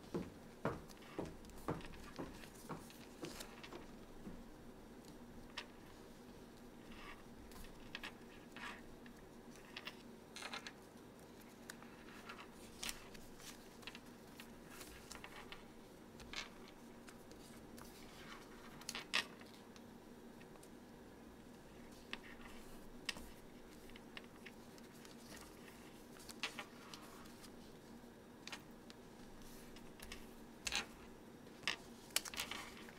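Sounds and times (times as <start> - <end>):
faint steady hum: 0.0 - 32.9
paper rustling and creasing: 11.4 - 19.6, 21.8 - 27.9, 31.7 - 32.9.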